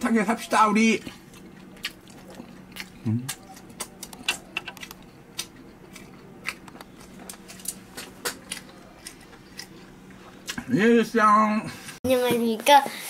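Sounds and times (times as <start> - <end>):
chewing crispy food: 0.8 - 10.7.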